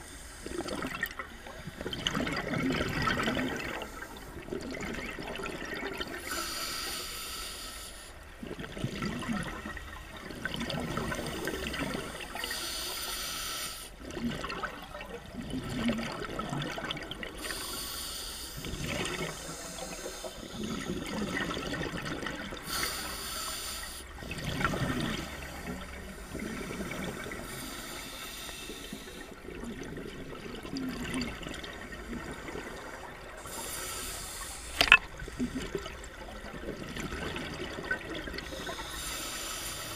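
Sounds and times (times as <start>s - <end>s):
regulator hissing inhale: 0.0s - 0.8s, 6.2s - 8.2s, 12.0s - 14.0s, 17.4s - 21.4s, 22.6s - 24.2s, 27.3s - 29.4s, 33.4s - 36.0s, 38.4s - 39.9s
gurgling exhaled bubbles: 0.0s - 6.3s, 8.4s - 12.6s, 14.0s - 17.7s, 18.6s - 23.0s, 24.1s - 28.1s, 28.9s - 33.7s, 34.8s - 39.0s.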